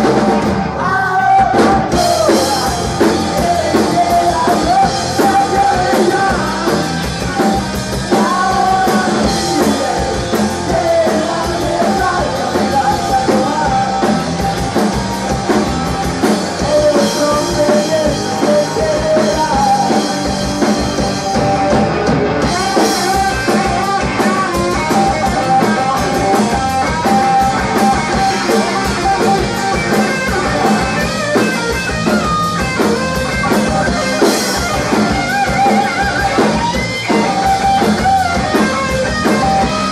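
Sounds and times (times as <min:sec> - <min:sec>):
bass guitar: 0:00.0 - 0:39.9
drum kit: 0:00.0 - 0:39.9
electric guitar: 0:00.0 - 0:39.9
man singing: 0:00.7 - 0:14.5, 0:16.6 - 0:21.7, 0:22.4 - 0:31.5.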